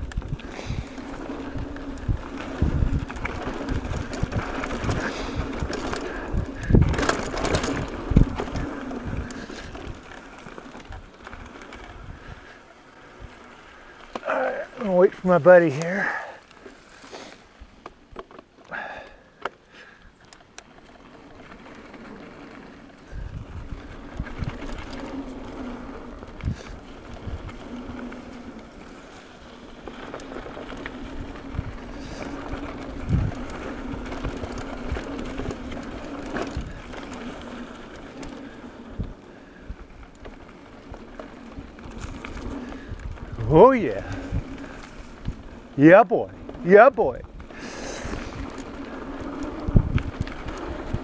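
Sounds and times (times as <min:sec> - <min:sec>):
bike knocks and rattles: 0:00.0 - 0:12.0
wind buffeting microphone: 0:00.0 - 0:13.6, 0:21.3 - 0:51.0
bike tyre hum on dirt: 0:00.0 - 0:51.0.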